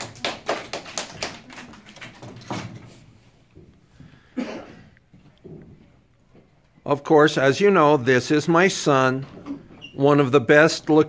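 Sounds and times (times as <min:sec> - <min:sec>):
children applauding: 0:00.0 - 0:02.6.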